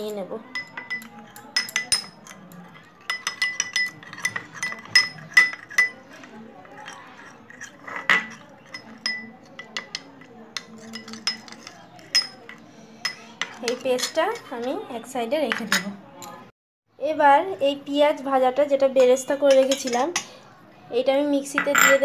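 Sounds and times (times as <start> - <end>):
spoon clinking against glass bowl: 0.4 - 14.8, 19.0 - 20.3.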